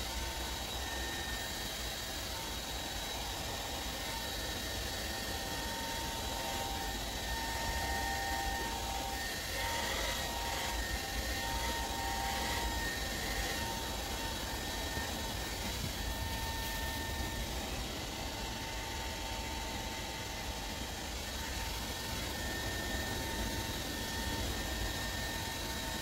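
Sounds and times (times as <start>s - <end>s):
hair dryer running: 0.0s - 26.0s.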